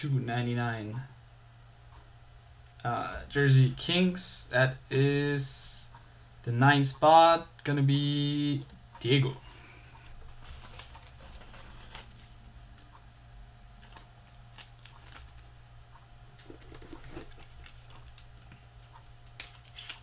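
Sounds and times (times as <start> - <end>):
steady low hum: 0.0 - 20.0
cards clicking and rustling: 13.8 - 15.5, 16.4 - 20.0.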